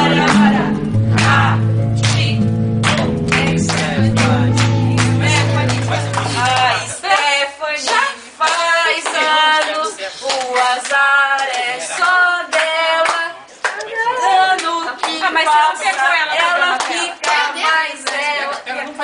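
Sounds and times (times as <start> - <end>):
group singing a celebration song: 0.0 - 19.0
hands clapping in time: 0.2 - 7.3.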